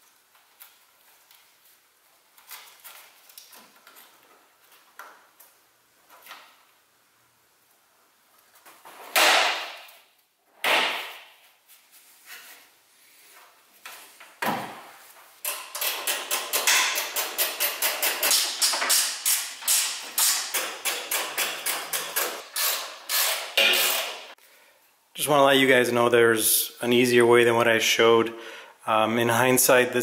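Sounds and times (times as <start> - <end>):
tool scrapes and knocks: 15.4 - 24.4.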